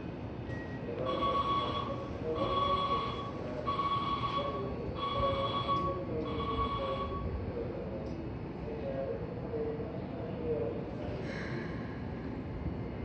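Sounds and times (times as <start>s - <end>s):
platform background noise: 0.6s - 10.8s
electronic signal tone ringing: 1.1s - 7.2s.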